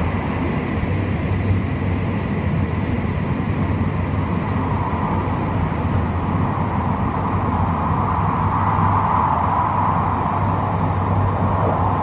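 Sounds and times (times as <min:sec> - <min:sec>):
high-speed train rumble: 0:00.0 - 0:12.0.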